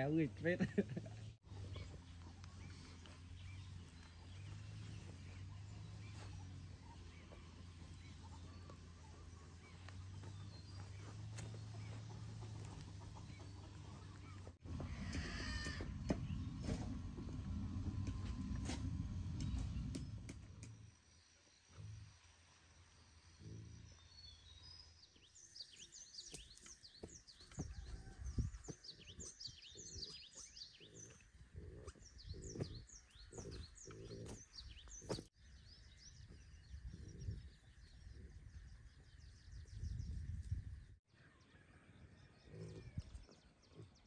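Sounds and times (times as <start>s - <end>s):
small birds chirping: 0.0s - 17.4s, 23.4s - 41.0s, 42.2s - 44.0s
faint low rumbling: 0.0s - 21.0s, 26.8s - 41.0s.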